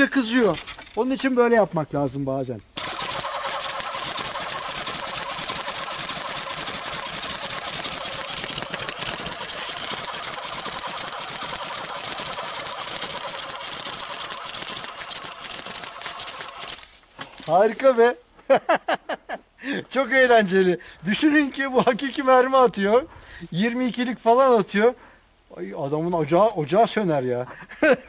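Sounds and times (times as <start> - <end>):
airsoft minigun rapid firing: 2.8 - 16.9.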